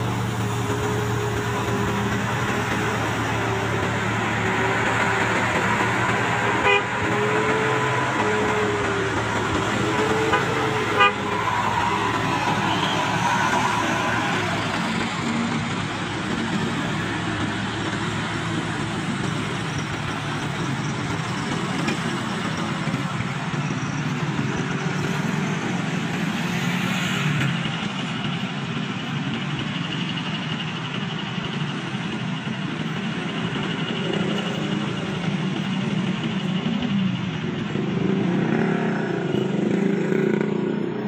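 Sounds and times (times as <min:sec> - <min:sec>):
motorcycle engine: 0:00.0 - 0:23.6, 0:32.6 - 0:41.0
car engine: 0:00.0 - 0:41.0
truck engine: 0:00.0 - 0:41.0.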